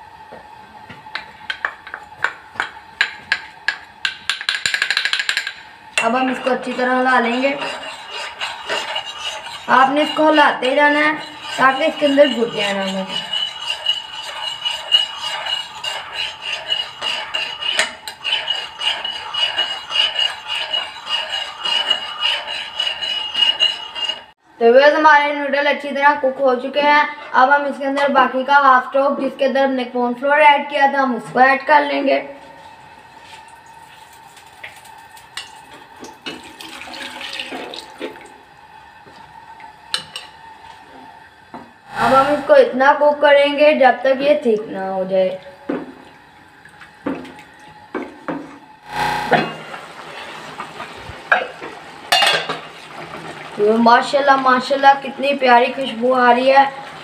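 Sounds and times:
metal spoon stirring in glass bowl: 0:04.4 - 0:24.3
liquid pouring and splashing: 0:36.1 - 0:38.3.

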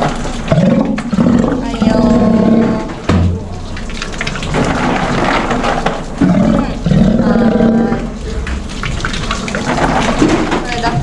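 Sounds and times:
sea lion low calls: 0:00.5 - 0:03.0, 0:06.2 - 0:08.2.

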